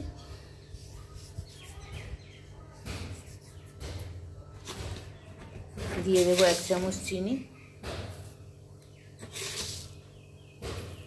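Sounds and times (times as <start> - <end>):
fingers rustling in dry flour: 0.0 - 7.2, 9.2 - 10.1.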